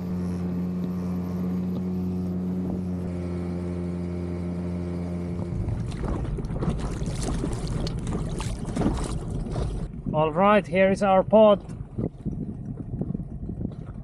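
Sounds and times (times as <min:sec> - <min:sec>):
outboard motor running: 0:00.0 - 0:14.0
water splashing: 0:05.2 - 0:10.0
wind on microphone: 0:05.4 - 0:14.0.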